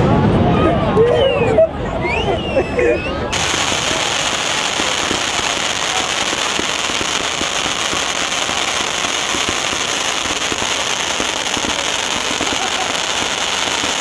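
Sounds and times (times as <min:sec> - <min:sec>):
fireworks hissing and popping: 0:03.3 - 0:14.0.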